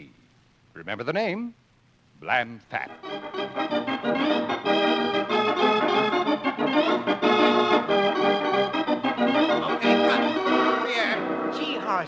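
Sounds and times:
organ music: 0:02.8 - 0:12.0.

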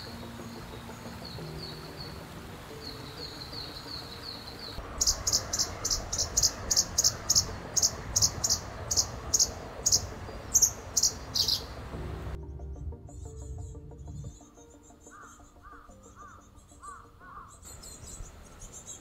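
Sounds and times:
sparrow chirping: 0:00.0 - 0:11.9, 0:12.5 - 0:19.0
shallow running water: 0:00.0 - 0:12.0.

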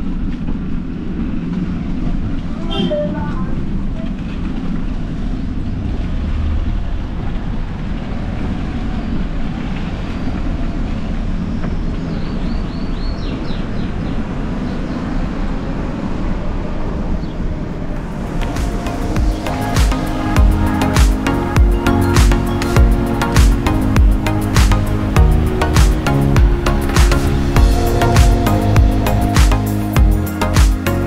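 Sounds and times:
bicycle rolling rumble: 0:00.0 - 0:02.7, 0:03.4 - 0:30.6
wind buffeting microphone: 0:03.5 - 0:30.4
high chirps: 0:18.2 - 0:31.0.

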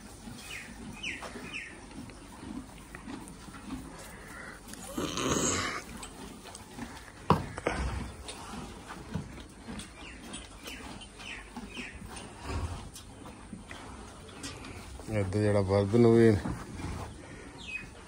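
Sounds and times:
horse feeding at manger: 0:00.0 - 0:18.0
small birds chirping: 0:00.2 - 0:02.9, 0:06.6 - 0:15.7, 0:17.0 - 0:18.0.

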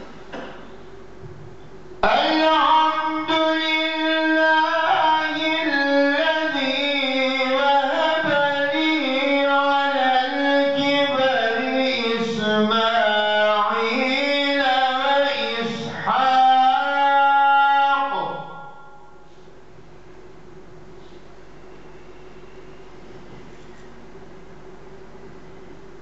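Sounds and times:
man chanting recitation: 0:02.0 - 0:19.1.

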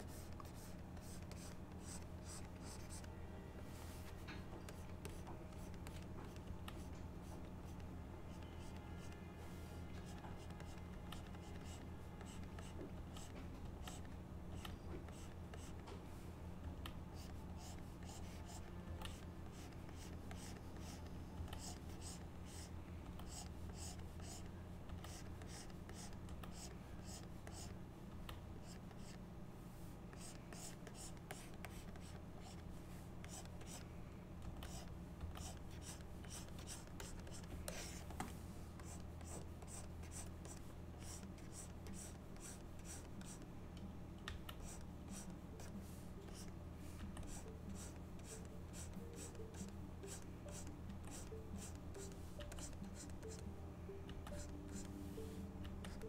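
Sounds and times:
stylus scratching on tablet: 0:00.0 - 0:03.2, 0:03.8 - 0:15.8, 0:17.1 - 0:27.8, 0:30.1 - 0:33.8, 0:34.6 - 0:38.1, 0:38.7 - 0:43.4, 0:44.6 - 0:53.5.

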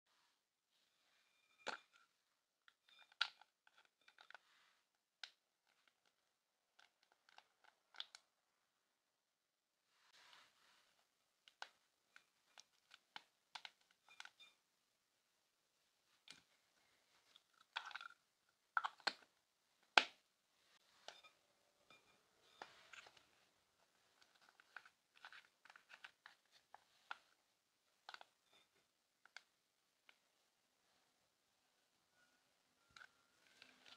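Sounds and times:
plastic pouch crinkling and clicking: 0:24.2 - 0:27.4.

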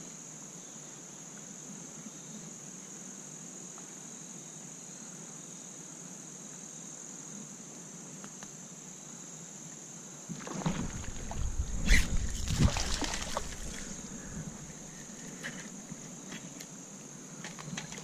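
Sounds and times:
insects trilling: 0:00.0 - 0:18.0
rumbling rustling noise: 0:10.3 - 0:16.3.

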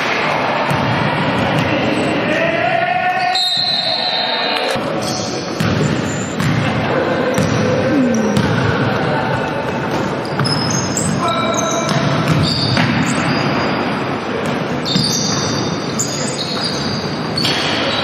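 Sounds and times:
players' voices: 0:00.0 - 0:12.3
basketball bouncing on wooden floor: 0:08.2 - 0:08.7.

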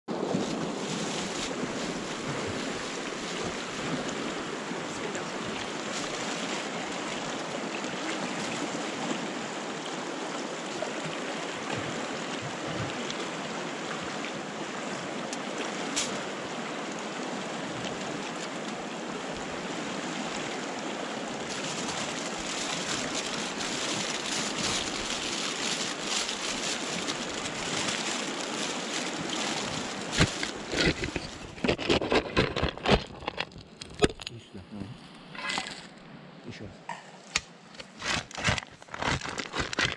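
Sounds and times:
river rushing over stones: 0:00.1 - 0:31.6
aluminium foil crinkling: 0:21.5 - 0:33.6, 0:38.0 - 0:39.9.

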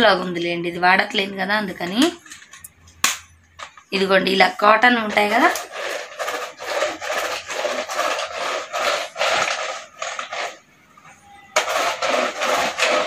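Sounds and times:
roller sweeper scraping rug: 0:05.0 - 0:10.7, 0:11.6 - 0:13.0.

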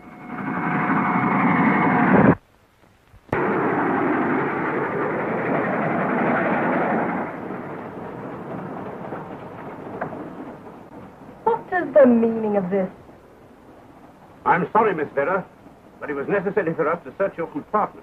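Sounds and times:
train rushing past: 0:03.4 - 0:13.0.

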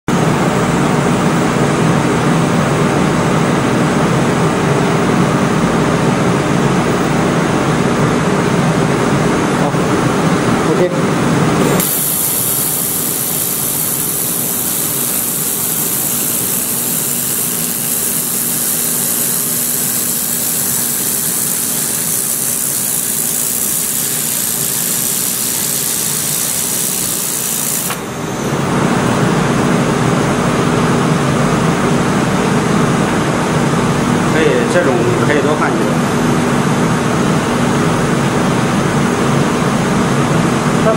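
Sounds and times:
machine hum: 0:00.1 - 0:40.9
laser welder hissing: 0:11.6 - 0:29.0.

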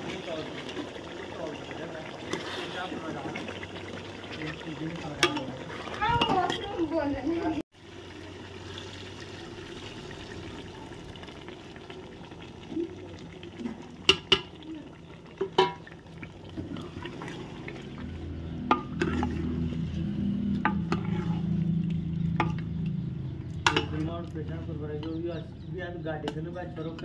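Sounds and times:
curry sizzling in a pot: 0:00.0 - 0:25.6
spoon stirring in a pot: 0:04.2 - 0:06.7, 0:15.4 - 0:24.1
spoon knocking against a pot: 0:15.4 - 0:15.8.

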